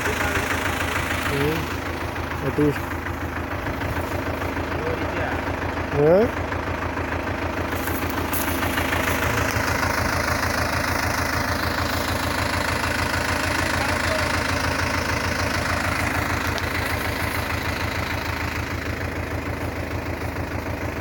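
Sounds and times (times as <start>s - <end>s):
tractor engine idling: 0.0s - 21.0s.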